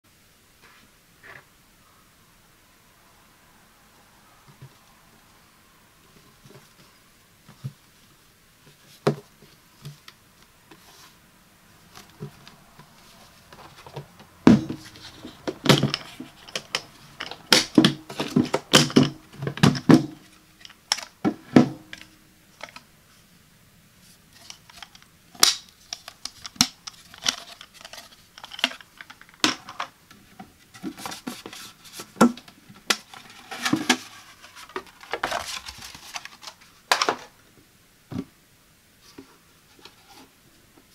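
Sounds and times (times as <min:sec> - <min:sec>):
cardboard rustling: 0:11.8 - 0:22.0, 0:24.3 - 0:29.8, 0:30.6 - 0:37.3.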